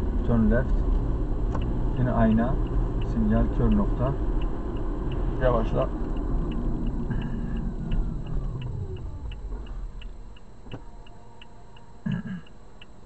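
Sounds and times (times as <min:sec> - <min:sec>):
road and engine noise: 0:00.0 - 0:13.0
turn signal clicking: 0:00.0 - 0:13.0
whine falling in pitch: 0:05.4 - 0:12.9.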